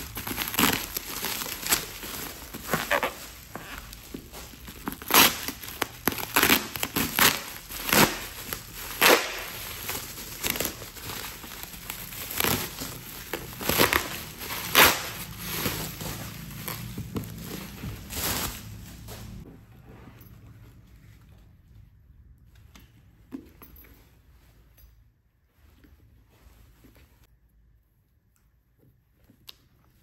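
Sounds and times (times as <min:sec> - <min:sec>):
bubble wrap crinkling: 0:00.0 - 0:19.4.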